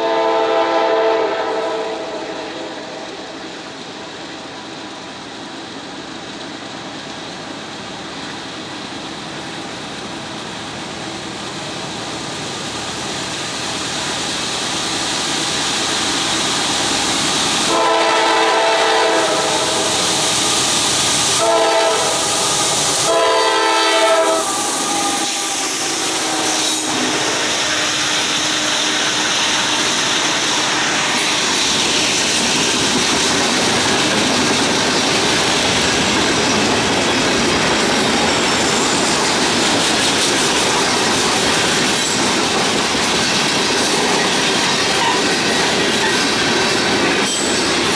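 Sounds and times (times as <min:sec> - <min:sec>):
locomotive horn blasts: 0:00.0 - 0:03.0, 0:17.7 - 0:20.0, 0:21.4 - 0:29.9
freight train rumble: 0:00.0 - 0:47.9
train wheel clatter: 0:05.6 - 0:47.9.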